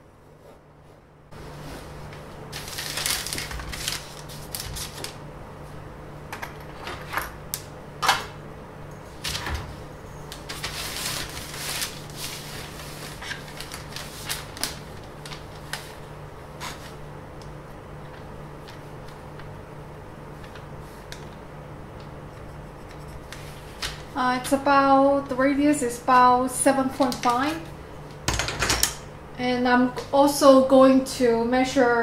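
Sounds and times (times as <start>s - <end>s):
steady low hum: 0.0s - 32.0s
paper shifting: 2.5s - 5.2s, 10.4s - 17.0s
pencil scratching on paper: 22.2s - 23.6s.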